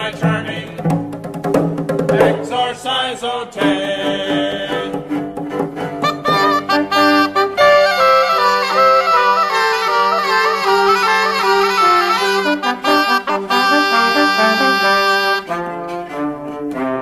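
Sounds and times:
wind ensemble playing: 0:03.6 - 0:17.0.

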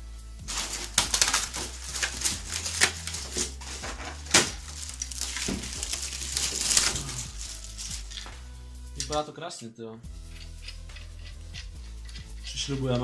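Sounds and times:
plastic bag crinkling: 0:00.5 - 0:08.4.

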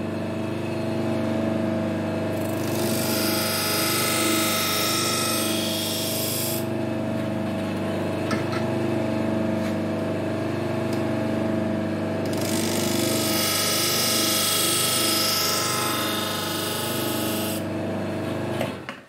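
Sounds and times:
bench buffer motor running: 0:02.2 - 0:07.3, 0:12.2 - 0:17.7.

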